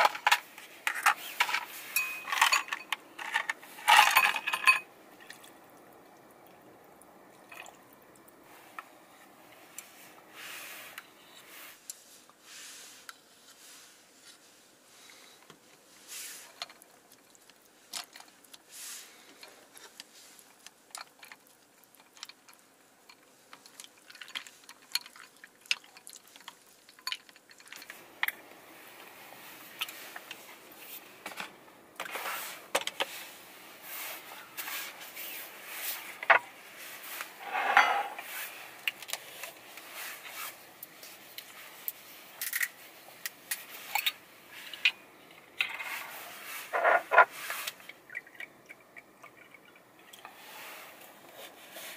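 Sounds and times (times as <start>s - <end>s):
ice cubes clinking: 1.0s - 4.9s.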